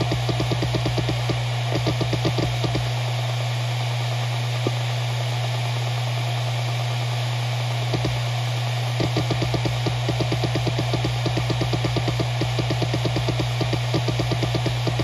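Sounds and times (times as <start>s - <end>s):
hard drive head clicks: 0.0s - 2.9s, 7.9s - 8.2s, 9.0s - 15.0s
hard drive spinning hum: 0.0s - 15.0s.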